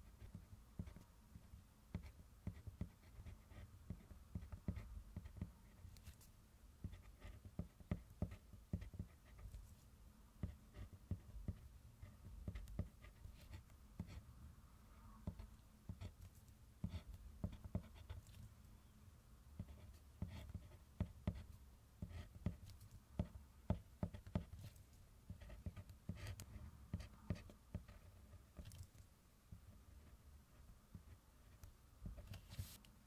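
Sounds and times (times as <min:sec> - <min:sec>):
pencil scratching on paper: 0:00.0 - 0:09.8, 0:10.4 - 0:14.2, 0:15.2 - 0:18.4, 0:19.6 - 0:28.8.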